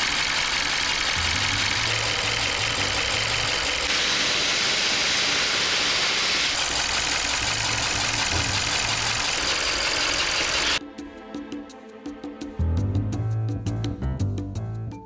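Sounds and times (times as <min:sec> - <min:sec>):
car engine idling roughly: 0:00.0 - 0:10.8.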